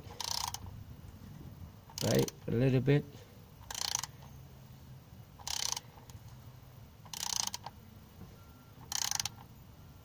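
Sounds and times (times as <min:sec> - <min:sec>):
ratchet wrench clicking: 0:00.1 - 0:00.6, 0:01.9 - 0:02.4, 0:03.6 - 0:04.2, 0:05.4 - 0:06.1, 0:07.0 - 0:07.8, 0:08.8 - 0:09.4.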